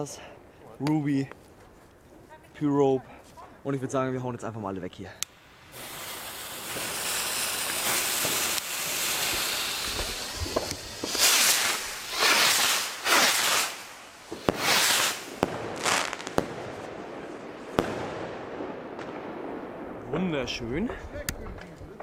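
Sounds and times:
fuses hissing: 5.2s - 16.3s
firework bursts cracking: 5.2s - 20.2s
rockets whooshing: 5.2s - 21.3s.

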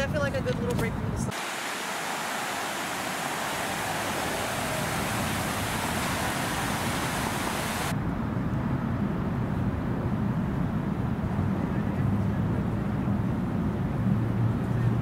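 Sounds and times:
rushing hiss: 1.3s - 7.9s.

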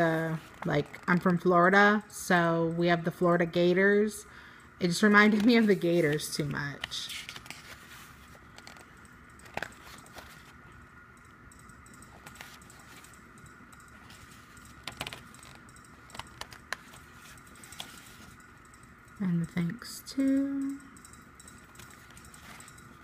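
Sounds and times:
faint background tone: 0.0s - 23.0s
book pages being turned: 5.2s - 10.6s, 12.1s - 13.1s, 14.0s - 18.4s, 21.7s - 23.0s.

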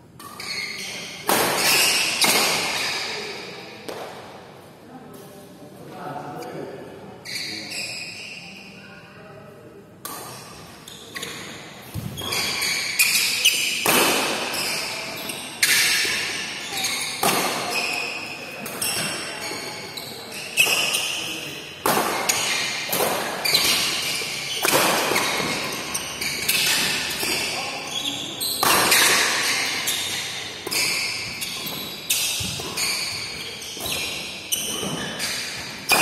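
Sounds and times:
rackets striking shuttlecock: 1.2s - 2.9s, 17.2s - 17.8s, 28.6s - 36.0s.

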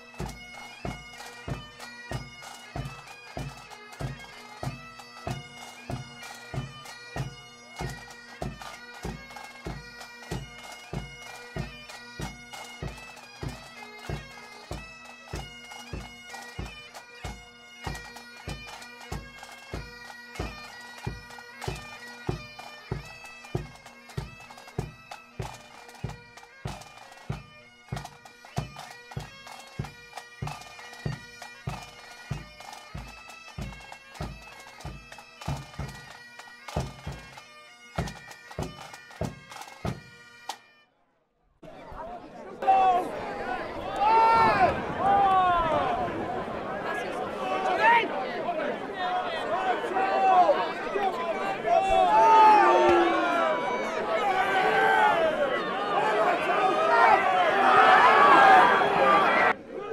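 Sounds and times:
bagpipes with drone: 0.0s - 40.7s, 52.2s - 56.8s
drum beating: 0.2s - 40.2s, 43.9s - 48.0s, 49.2s - 55.5s.

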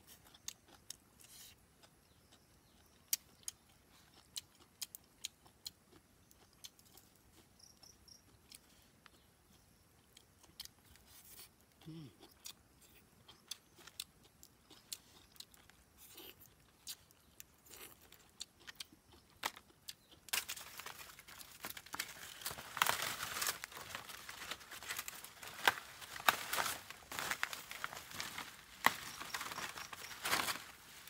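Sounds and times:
crinkling and rustling handling: 20.3s - 31.0s.

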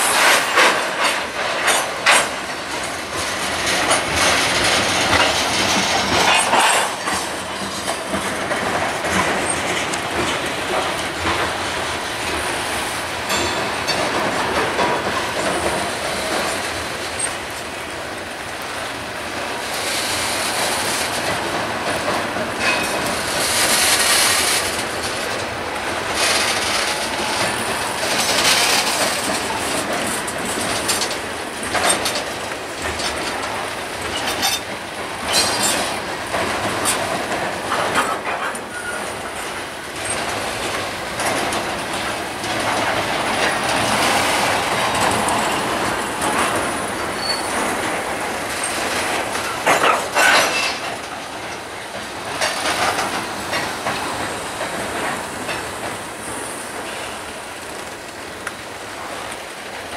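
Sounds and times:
train rumble: 0.0s - 59.9s
train wheels clacking on rail joints: 0.0s - 59.9s
faint high wheel squeal: 47.2s - 47.6s.

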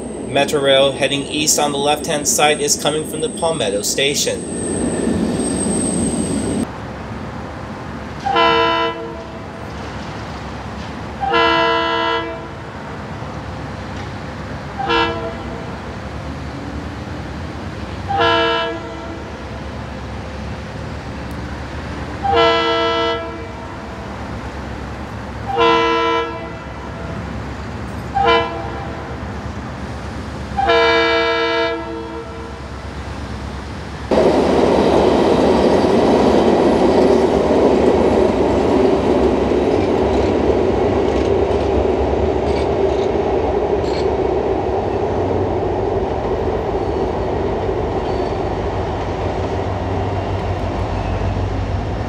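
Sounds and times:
train running noise: 0.0s - 52.0s
diesel locomotive air horn blasts: 8.2s - 9.4s, 11.2s - 12.6s, 14.8s - 15.7s, 18.0s - 19.3s, 22.2s - 23.7s, 25.4s - 27.1s, 28.1s - 29.1s, 30.6s - 32.6s.

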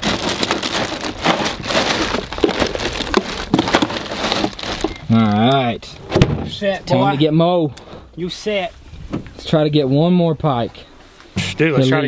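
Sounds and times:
plastic bag of ice crinkling: 0.0s - 5.7s.

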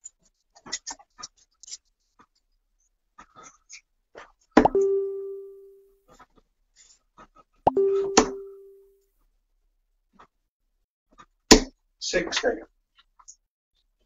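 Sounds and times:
short ringing tone: 4.8s - 5.9s, 7.7s - 8.9s.

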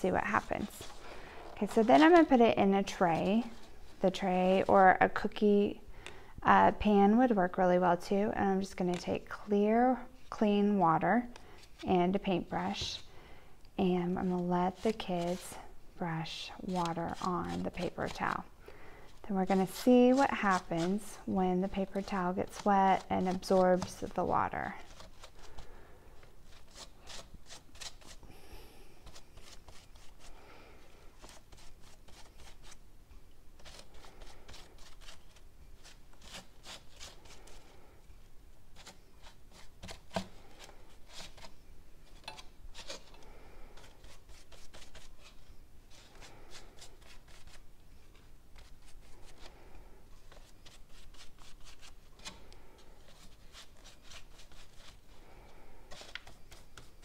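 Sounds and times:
paintbrush strokes on paper towel: 0.0s - 5.0s, 14.2s - 15.6s, 52.7s - 57.0s.

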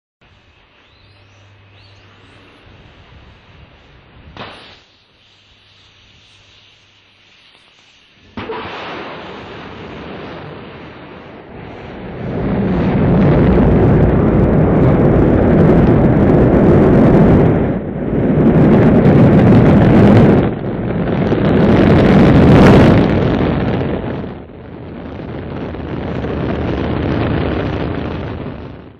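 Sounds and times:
rocket engine roaring: 7.1s - 28.9s.

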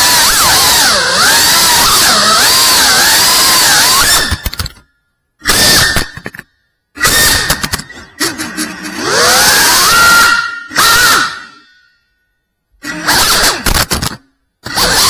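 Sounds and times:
drone motors whining: 0.0s - 4.8s, 7.0s - 12.0s, 12.8s - 15.0s
clatter of clicks: 4.3s - 4.9s, 13.6s - 14.3s.

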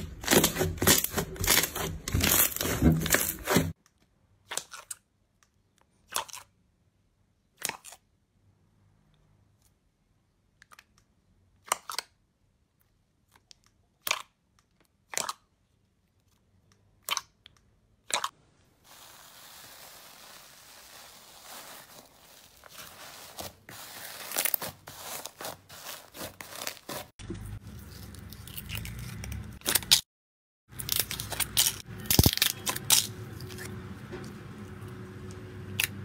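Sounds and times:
slime hissing: 18.8s - 26.3s.

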